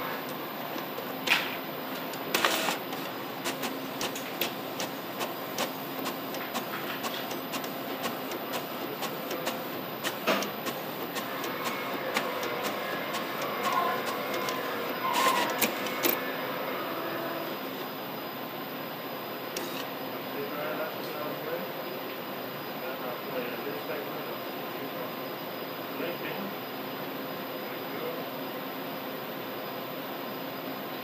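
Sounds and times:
equipment mechanical hum: 0:00.0 - 0:31.0
irregular clicks and taps: 0:02.9 - 0:14.6.

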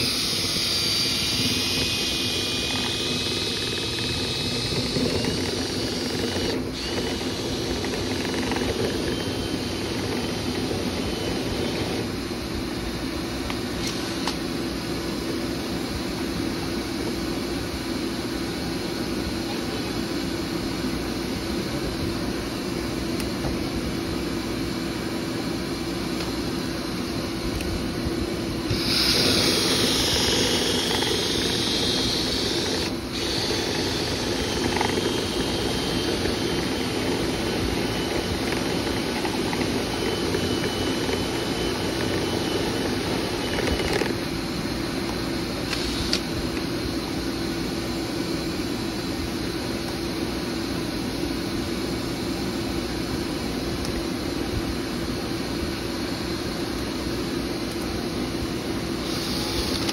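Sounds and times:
motor drone with rushing air: 0:00.0 - 0:13.1, 0:25.2 - 0:48.0.

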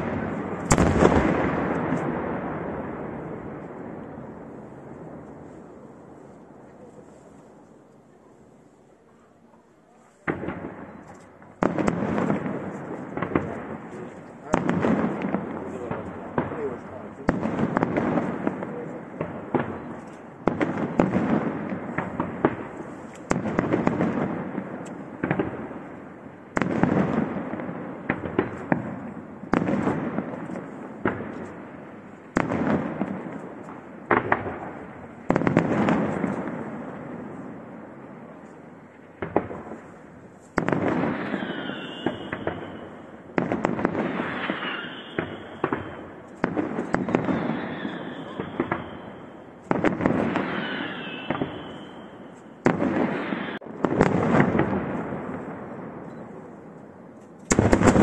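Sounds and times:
firework shells bursting: 0:00.0 - 0:02.2, 0:40.4 - 0:55.1, 0:57.3 - 0:58.0
firework crackling: 0:00.0 - 0:08.1, 0:09.8 - 0:58.0
falling firework whistles: 0:40.6 - 0:43.0, 0:44.1 - 0:46.2, 0:46.8 - 0:53.6.

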